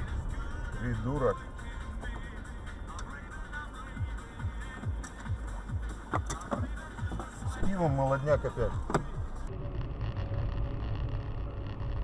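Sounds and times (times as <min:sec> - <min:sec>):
low steady hum: 0:06.6 - 0:12.0.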